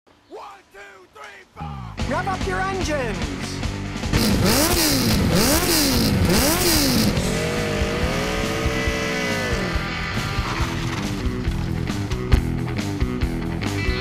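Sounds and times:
motorcycle engine revving: 3.9 - 12.3
motorcycle riding past: 4.1 - 11.3.

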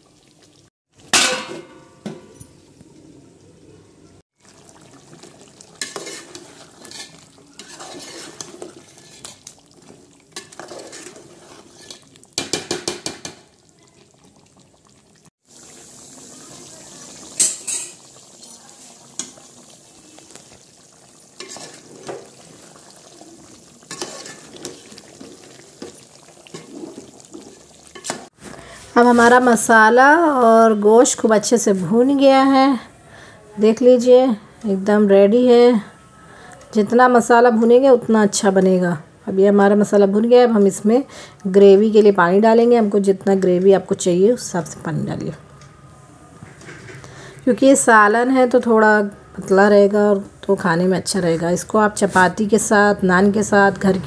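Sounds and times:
food sizzling: 0.0 - 2.8, 4.3 - 32.8
metal spoon scraping pot: 5.8 - 9.6, 10.4 - 12.9, 21.4 - 22.2, 23.9 - 28.3.

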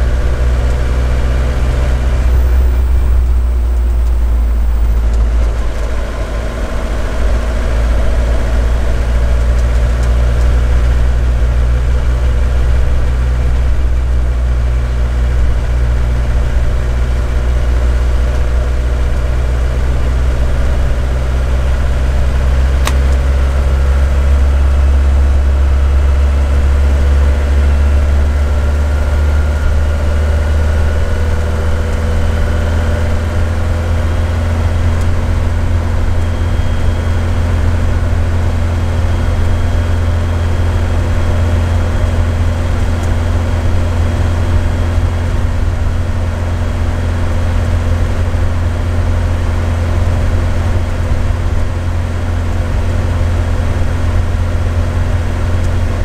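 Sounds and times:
diesel engine droning: 0.0 - 56.0
road noise: 0.0 - 56.0
brief click: 22.8 - 23.2.

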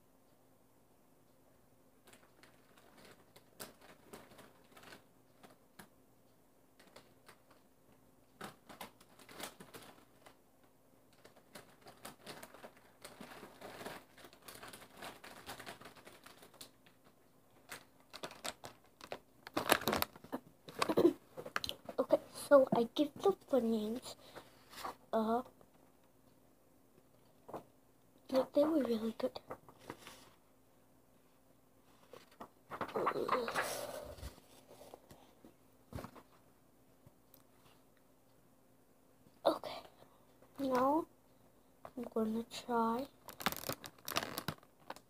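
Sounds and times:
snack packaging crinkling: 11.2 - 17.0, 17.6 - 21.8, 43.2 - 45.0.

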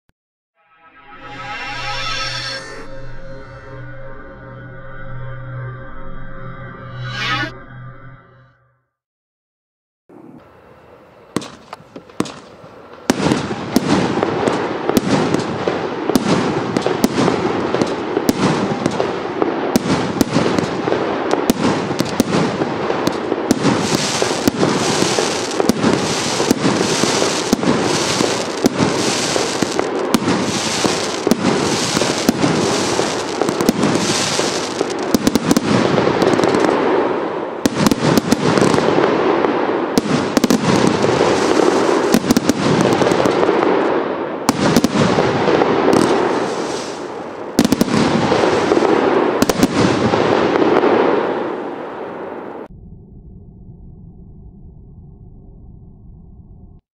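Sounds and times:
firework barrage: 10.1 - 52.8
firework pops: 11.4 - 19.1.

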